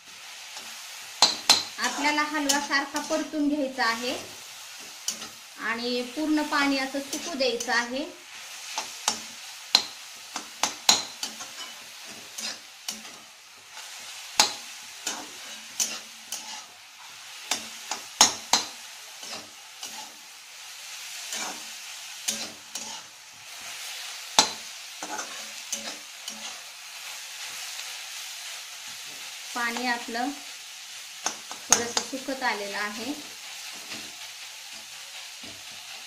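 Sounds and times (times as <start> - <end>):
vegetables sizzling in fat: 0.0 - 36.0
metal spatula scraping a pan: 0.5 - 4.1, 6.1 - 27.8.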